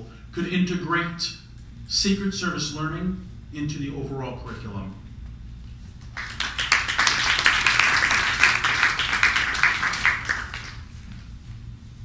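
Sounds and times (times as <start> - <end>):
audience applauding: 6.1 - 11.0.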